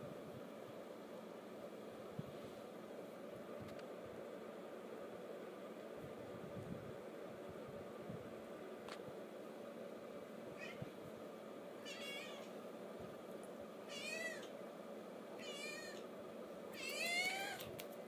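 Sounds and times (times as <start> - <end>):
kitten mewing: 11.8 - 12.5, 13.9 - 14.5, 15.4 - 16.1, 16.8 - 17.7.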